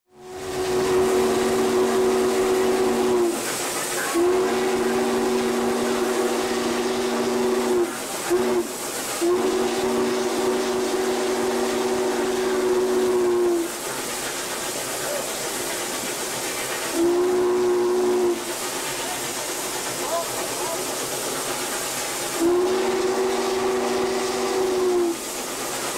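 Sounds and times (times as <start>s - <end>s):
steam hissing: 0.1s - 25.9s
steam whistle blasts: 0.2s - 13.8s, 16.9s - 18.5s, 22.3s - 25.3s.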